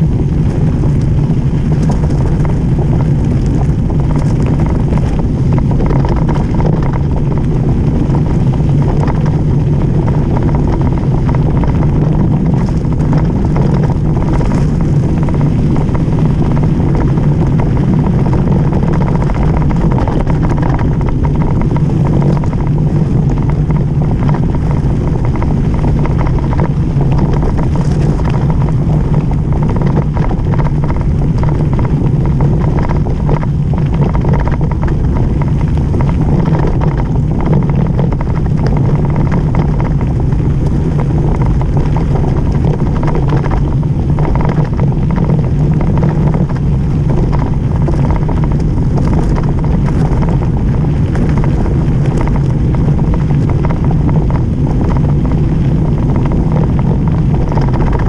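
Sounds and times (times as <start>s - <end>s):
tyre noise on gravel: 0.0s - 54.2s
bike rattling over bumps: 0.0s - 58.0s
wind rush on microphone: 0.0s - 58.0s.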